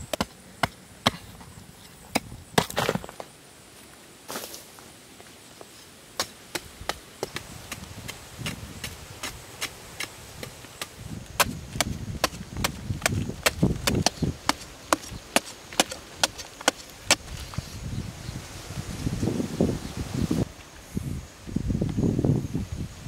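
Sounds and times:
soil crumbling: 0:00.0 - 0:03.4, 0:06.1 - 0:17.6.

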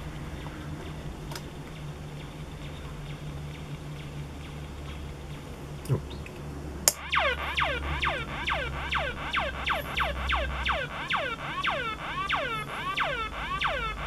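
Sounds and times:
synthesizer falling pitch sweeps: 0:06.9 - 0:14.0.

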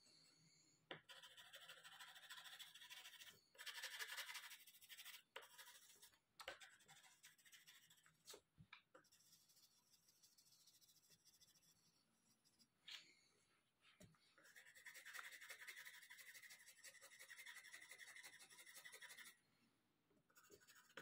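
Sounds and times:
pencil scratching on paper: 0:00.9 - 0:08.3, 0:09.0 - 0:12.7, 0:14.4 - 0:19.4, 0:20.3 - 0:21.0.

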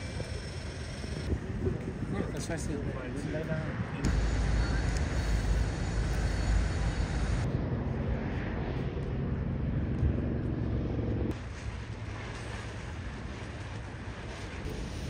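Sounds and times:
droning hum: 0:00.0 - 0:15.0
low vehicle rumble: 0:03.7 - 0:15.0.

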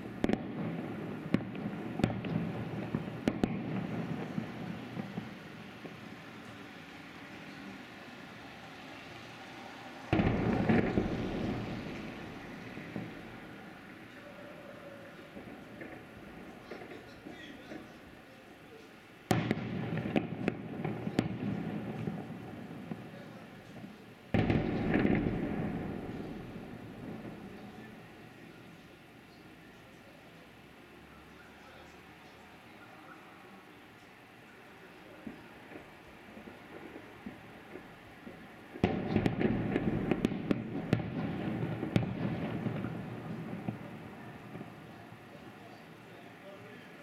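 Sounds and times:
sharp firework cracks: 0:00.0 - 0:06.7, 0:10.0 - 0:14.0, 0:19.3 - 0:28.0, 0:35.3 - 0:44.9.

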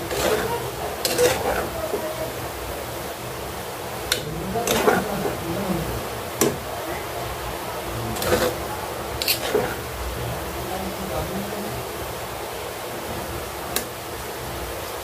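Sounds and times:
spatula scraping a pan: 0:00.0 - 0:02.3, 0:04.1 - 0:05.5, 0:08.1 - 0:10.0.

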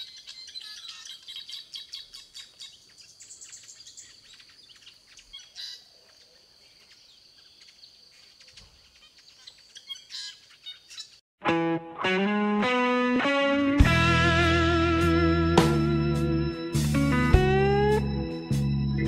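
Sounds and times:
birds chirping and twittering: 0:00.0 - 0:11.2.

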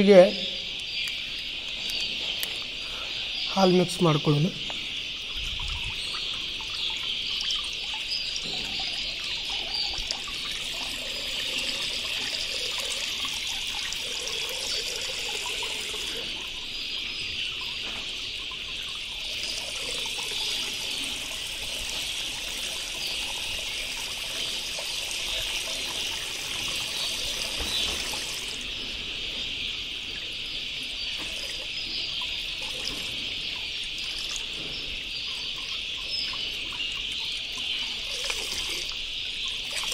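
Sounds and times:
insect chirring: 0:00.0 - 0:39.9
milk pouring into water: 0:05.2 - 0:16.7, 0:18.8 - 0:28.6, 0:36.7 - 0:39.0, 0:39.6 - 0:39.9.

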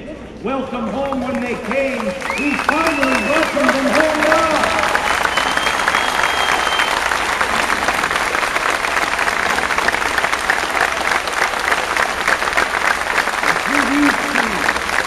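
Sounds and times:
crowd applauding: 0:00.7 - 0:15.0.

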